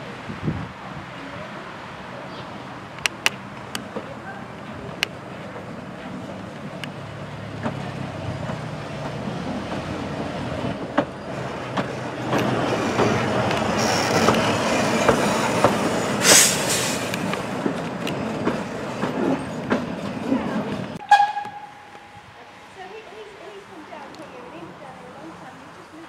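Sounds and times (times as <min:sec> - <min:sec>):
steam locomotive running slowly: 0:00.9 - 0:26.0
wheels clicking over rail joints: 0:02.8 - 0:22.1
loud hiss of steam: 0:12.6 - 0:17.7.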